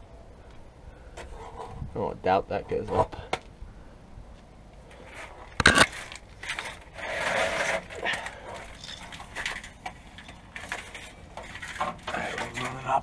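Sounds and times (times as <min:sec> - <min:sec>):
scraping and rustling: 0:04.9 - 0:13.0.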